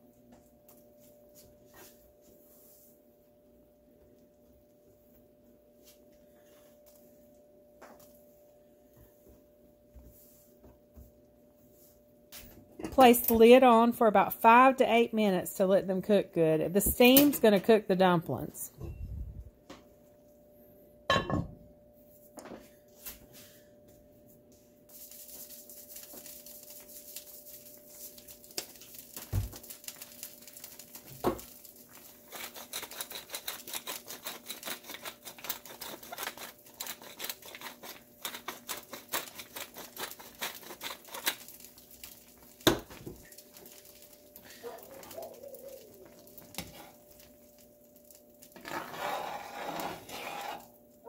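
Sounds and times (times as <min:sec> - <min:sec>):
steady low hum: 0:18.7 - 0:25.7.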